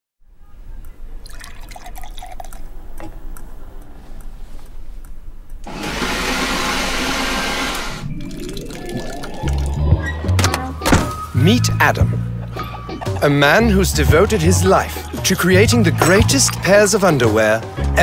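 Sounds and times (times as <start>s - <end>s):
blender whirring: 5.7s - 8.0s.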